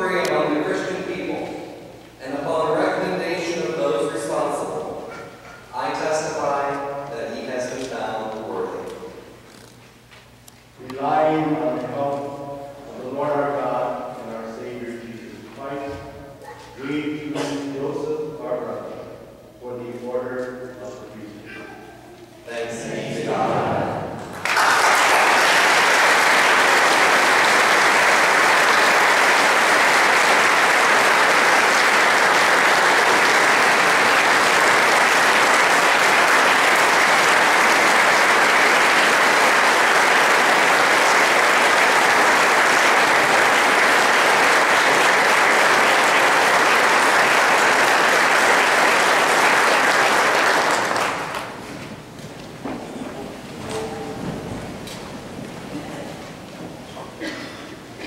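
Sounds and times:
congregation applauding: 22.5s - 52.0s.

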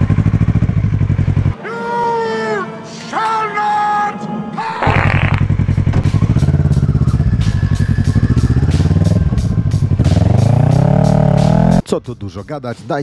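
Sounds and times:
motorcycle engine revving: 0.0s - 1.6s, 4.8s - 11.8s.

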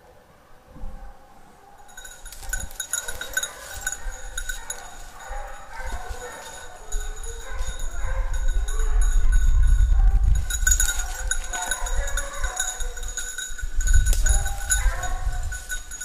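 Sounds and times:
wind rumble on microphone: 0.7s - 1.2s, 2.0s - 16.0s
dog bell jingling: 1.8s - 16.0s.

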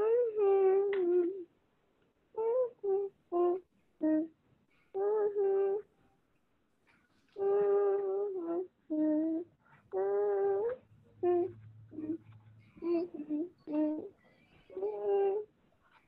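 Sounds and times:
girl humming: 0.0s - 1.5s, 2.4s - 4.3s, 5.0s - 5.9s, 7.4s - 15.5s.

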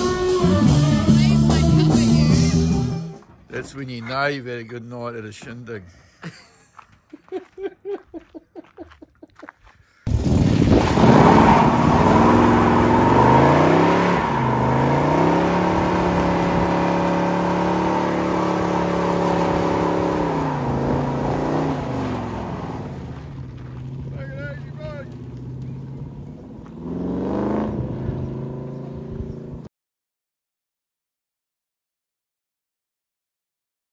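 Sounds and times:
drag racing engine accelerating: 10.5s - 29.7s.

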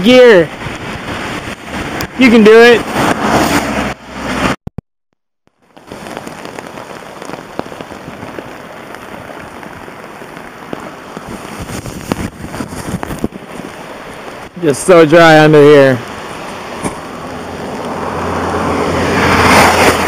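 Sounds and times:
wind and riding noise: 0.0s - 4.6s, 5.5s - 20.0s
rain pattering on a poncho: 5.5s - 20.0s.

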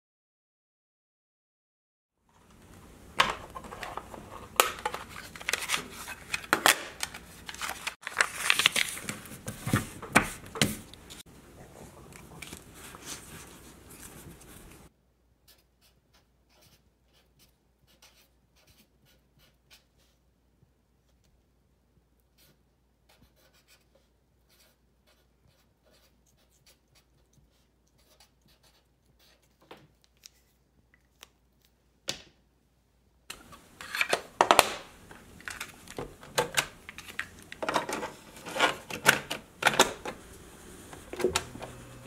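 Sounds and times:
marker scratching on paper: 15.4s - 20.2s, 22.4s - 29.6s.

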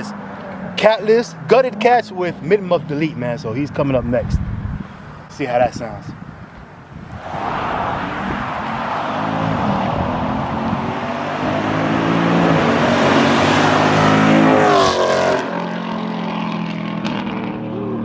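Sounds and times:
car exhaust driving past: 7.0s - 18.0s.

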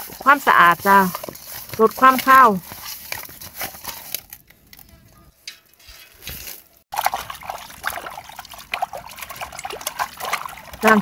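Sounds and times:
water splashing in a pot: 5.4s - 11.0s.

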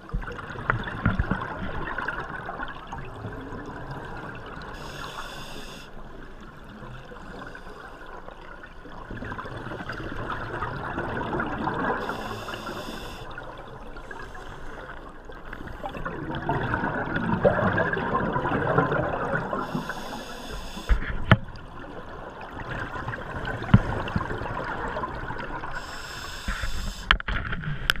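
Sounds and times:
exhaled bubbles rushing: 0.0s - 4.7s, 8.9s - 12.2s, 15.7s - 19.7s, 21.6s - 25.8s
scuba regulator hiss: 4.8s - 5.9s, 12.0s - 13.3s, 19.6s - 21.0s, 25.8s - 27.1s.

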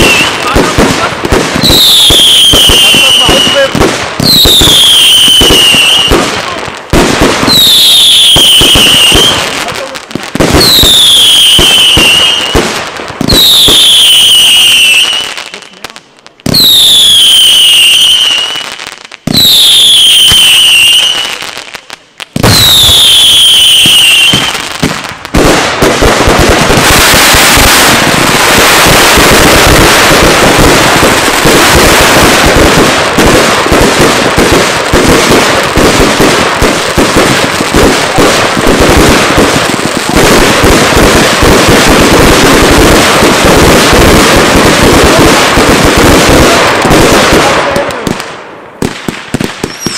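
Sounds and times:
falling firework whistle: 0.0s - 0.6s, 1.6s - 6.2s, 7.4s - 9.6s, 10.6s - 12.6s, 13.2s - 15.6s, 16.5s - 21.4s, 22.4s - 24.7s, 26.7s - 32.6s, 49.4s - 49.9s
firework launches: 0.0s - 49.9s
rapid firework bangs: 0.0s - 49.9s.

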